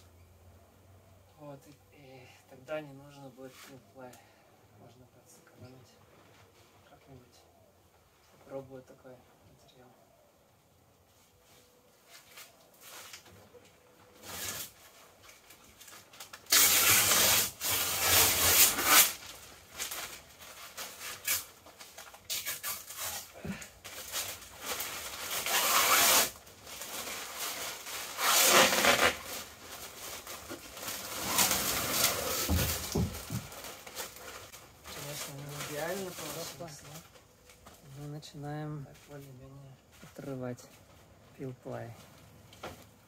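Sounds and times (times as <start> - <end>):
rustling of fabric and plastic: 10.9 - 43.0
fabric tearing off a hard surface: 16.2 - 21.6, 22.2 - 34.2.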